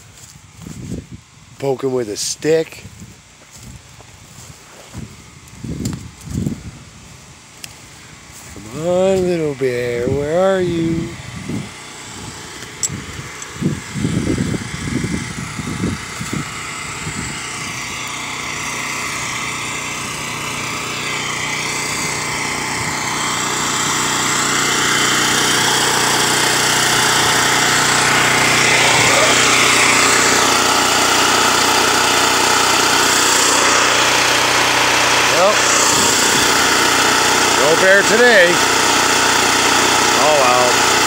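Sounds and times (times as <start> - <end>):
small petrol engine running: 0.0 - 41.0.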